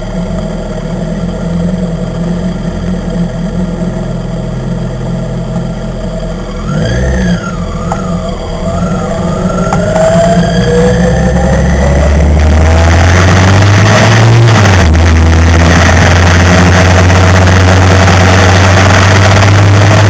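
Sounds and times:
motorcycle engines idling: 0:00.0 - 0:12.4
motorcycle engines revving: 0:00.0 - 0:20.0.

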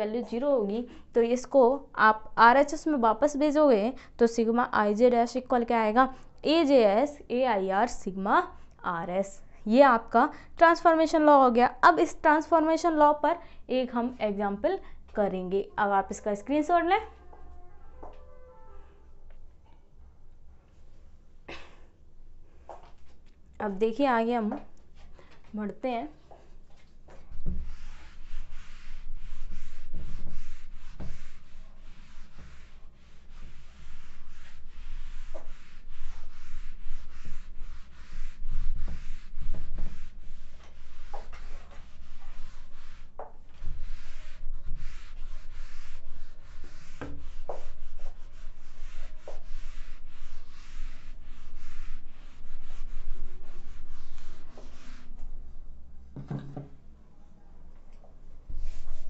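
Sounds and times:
duster rubbing whiteboard: 0:26.4 - 0:55.4, 0:58.5 - 0:59.0.

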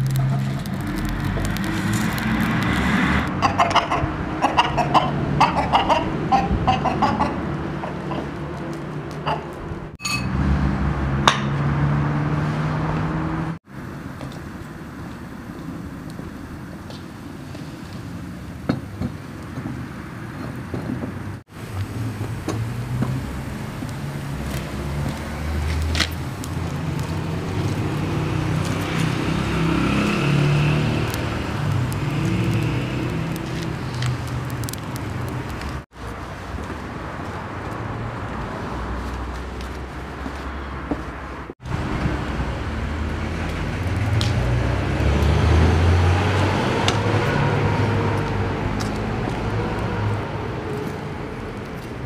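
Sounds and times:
wood fire crackling: 0:00.0 - 0:03.3, 0:13.8 - 0:40.5, 0:41.6 - 0:50.4.

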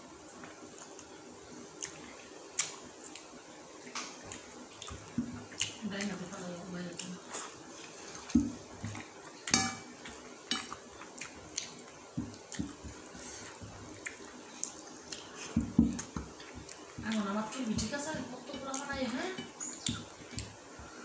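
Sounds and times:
wet chewing and lip smacks: 0:01.8 - 0:06.1, 0:10.0 - 0:15.4.

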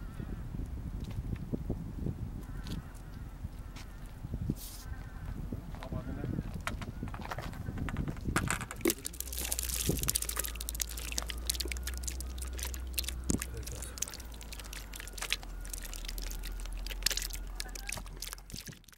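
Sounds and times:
fish crackling and splashing in water: 0:08.0 - 0:18.9.

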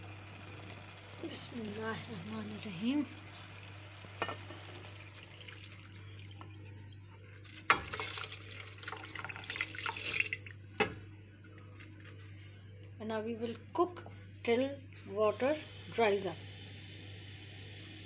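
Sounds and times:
sauce bubbling: 0:04.8 - 0:06.6, 0:07.9 - 0:10.8
water and rice pouring splash: 0:07.8 - 0:10.6.

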